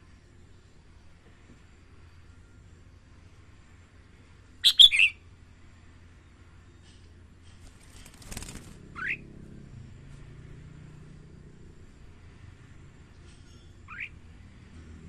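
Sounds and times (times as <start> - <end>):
bird chirping: 4.6 - 5.2, 8.9 - 9.3, 13.5 - 14.2.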